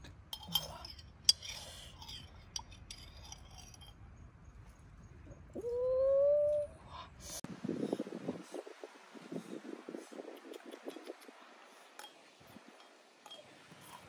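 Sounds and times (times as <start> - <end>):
metal spoon clinking: 0.3 - 4.0, 12.0 - 14.0
rising animal-like call: 5.5 - 7.0.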